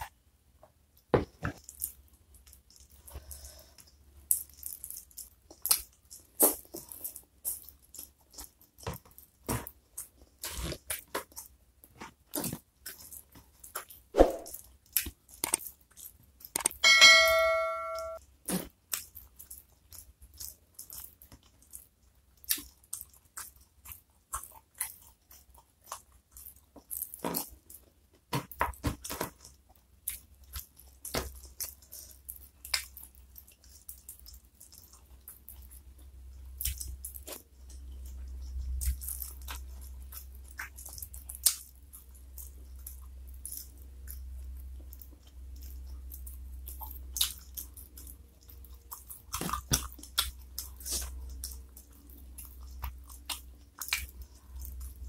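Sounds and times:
crunching of fried chicken: 1.0s - 16.8s, 18.2s - 55.0s
low hum: 16.8s - 18.2s.

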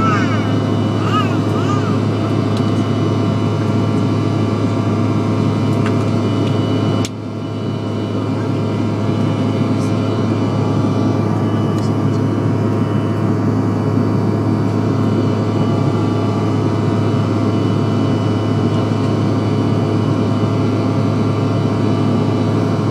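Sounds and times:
jet engine cabin roar: 0.0s - 22.9s.

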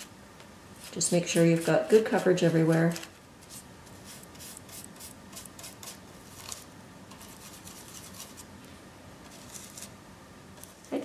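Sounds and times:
brush bristles scratching: 0.7s - 8.5s, 9.2s - 9.9s.

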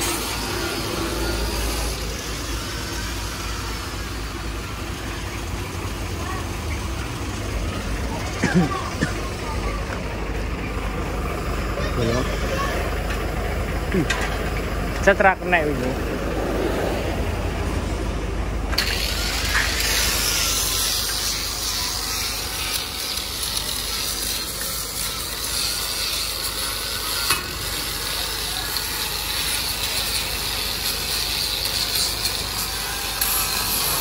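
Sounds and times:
angle grinder grinding metal: 0.0s - 5.6s, 18.7s - 34.0s.

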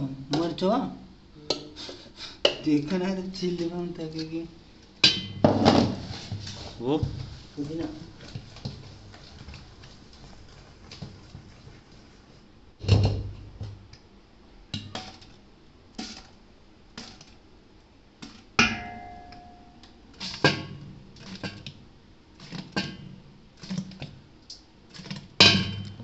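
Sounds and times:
spoon clanking against steel pots: 5.0s - 5.5s.

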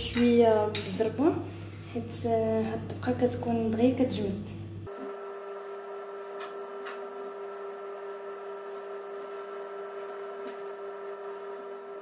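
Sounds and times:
electrical hum: 0.0s - 12.0s.

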